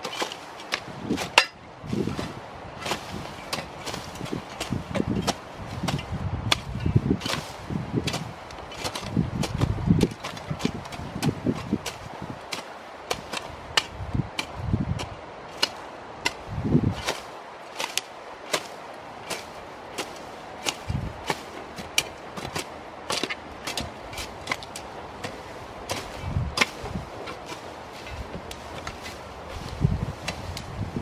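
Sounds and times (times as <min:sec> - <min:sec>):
dull low thuds: 0:00.8 - 0:12.2, 0:23.6 - 0:31.0.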